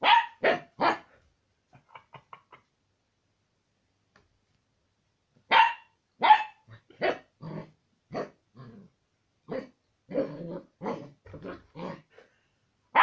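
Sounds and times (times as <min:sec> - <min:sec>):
puppy barking: 0:00.0 - 0:01.1, 0:05.5 - 0:07.3.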